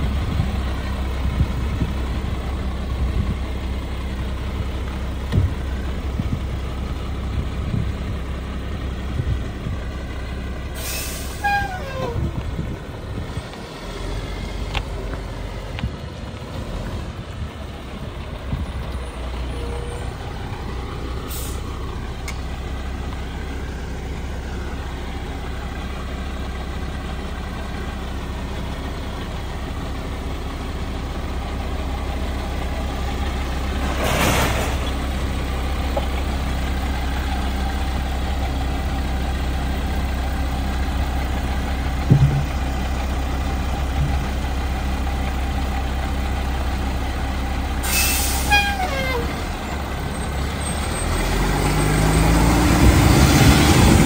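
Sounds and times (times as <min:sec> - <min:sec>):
garbage truck engine running: 0:00.0 - 0:54.0
air brake hiss: 0:10.8 - 0:11.6, 0:21.3 - 0:21.6, 0:47.8 - 0:48.6
knocks: 0:42.1 - 0:42.6.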